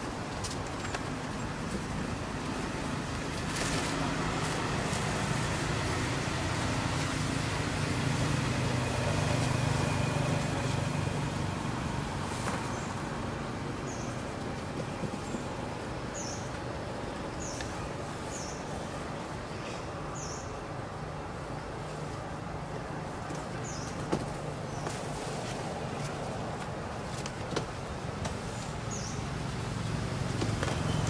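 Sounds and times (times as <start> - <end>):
vehicle engine rumbling: 0.0 - 20.1.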